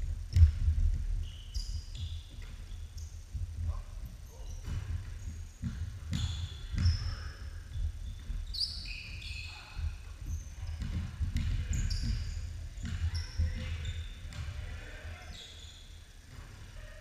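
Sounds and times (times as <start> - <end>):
basketball bouncing on hardwood: 0.3 - 1.2, 4.6 - 9.2, 10.2 - 14.6
sneakers squeaking: 0.3 - 17.0.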